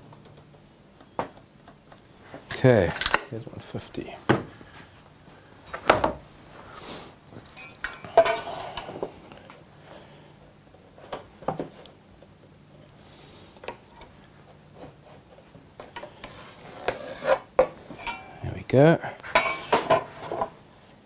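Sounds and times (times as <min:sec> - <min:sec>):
metal tools clinking: 0:07.5 - 0:08.9, 0:18.0 - 0:18.4.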